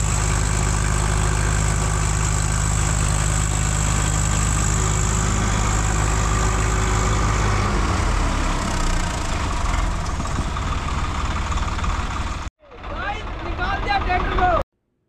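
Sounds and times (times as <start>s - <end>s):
tractor diesel engines: 0.0s - 14.6s.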